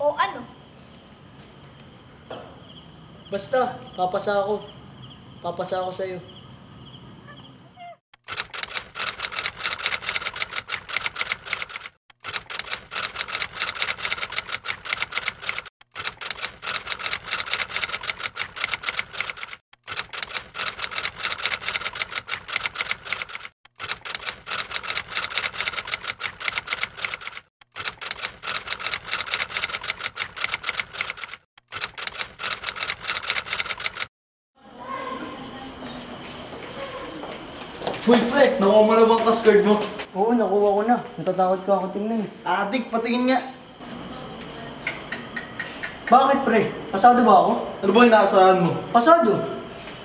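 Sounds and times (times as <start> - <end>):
typewriter keys clattering: 8.3 - 34.1.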